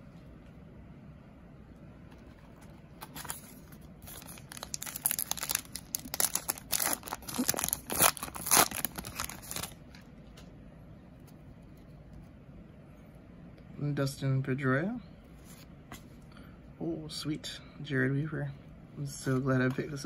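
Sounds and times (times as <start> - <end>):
wrapper tearing and crinkling: 3.0 - 9.8.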